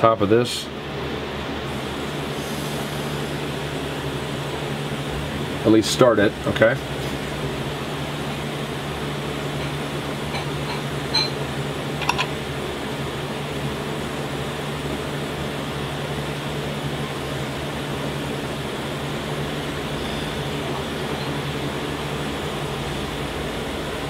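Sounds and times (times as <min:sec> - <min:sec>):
ventilation hum: 0:00.0 - 0:24.0.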